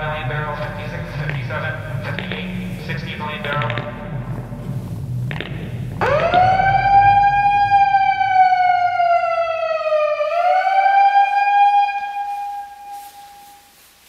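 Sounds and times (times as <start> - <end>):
electronic siren wailing: 5.7 - 13.7.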